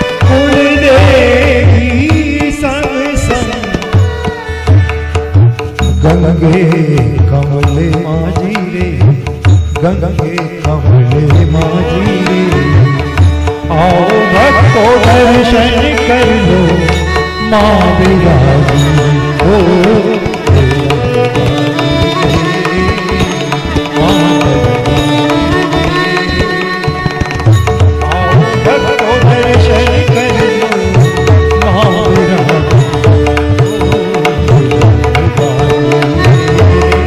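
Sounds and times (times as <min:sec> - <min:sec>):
ornamented instrumental melody: 0:00.0 - 0:37.0
tabla rhythm: 0:00.0 - 0:37.0.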